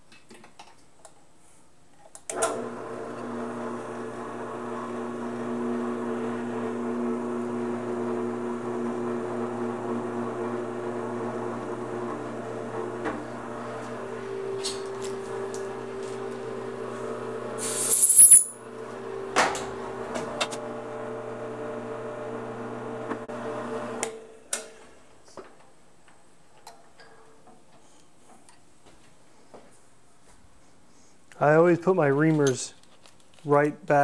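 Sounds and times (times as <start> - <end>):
drill press motor running: 2.3 - 17.8, 18.6 - 24.2
short loud hiss: 17.6 - 18.4.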